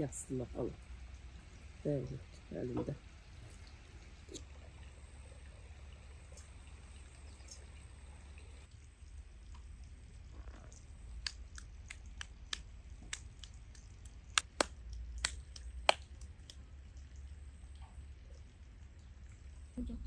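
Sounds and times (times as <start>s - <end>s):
low steady hum: 0.0s - 20.0s
sharp clicks and snaps: 10.7s - 16.6s.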